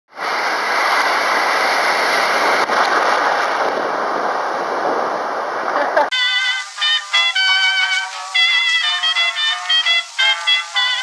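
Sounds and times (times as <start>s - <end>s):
surf breaking: 0.1s - 6.1s.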